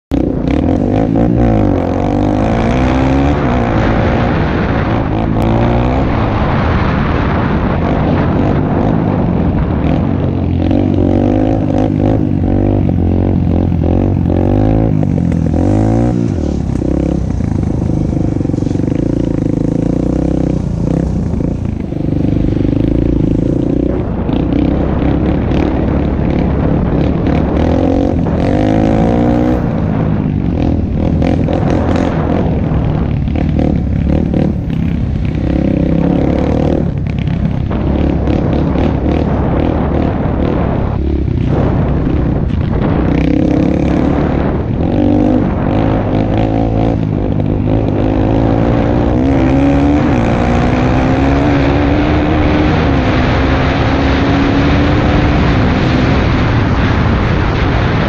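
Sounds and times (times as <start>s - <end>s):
dirt bike engine revving: 0.1s - 58.0s
clatter: 11.6s - 50.5s.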